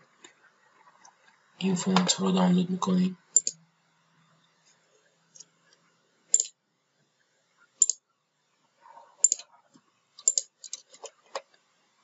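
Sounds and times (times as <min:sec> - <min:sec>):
computer mouse clicking: 0:03.4 - 0:03.6, 0:07.8 - 0:08.0, 0:09.2 - 0:09.5, 0:10.2 - 0:10.8.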